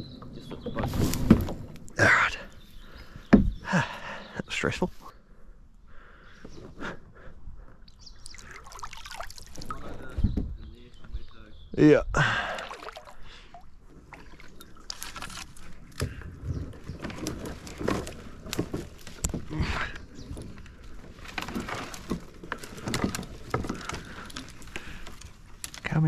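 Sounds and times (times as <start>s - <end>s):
paddle strokes splashing: 12.5s - 19.0s.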